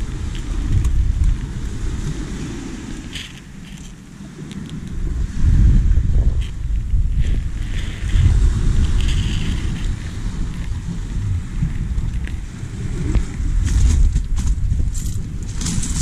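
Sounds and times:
small waves on pebble shore: 0.0s - 16.0s
wind buffeting microphone: 0.0s - 16.0s.

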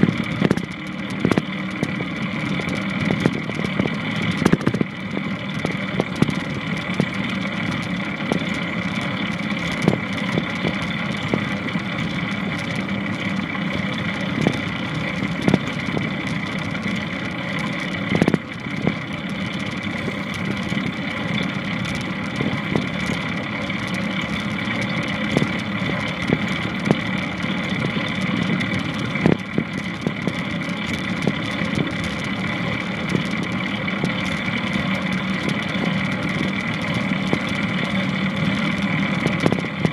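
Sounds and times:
longboard wheels rolling on pavement: 0.0s - 39.9s.

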